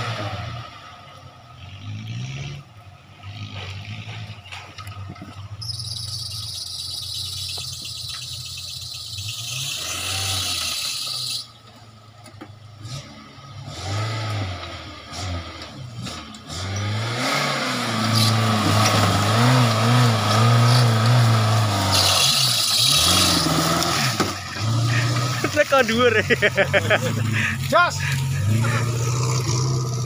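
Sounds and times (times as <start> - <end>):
engine revving: 0.0 - 0.9, 1.5 - 11.5, 12.8 - 30.0.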